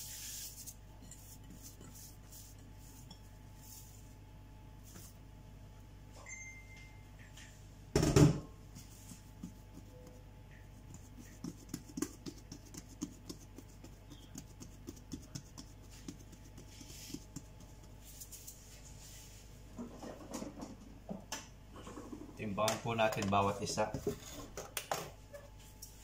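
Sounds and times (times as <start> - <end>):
hands patting bread dough: 8.8 - 18.7.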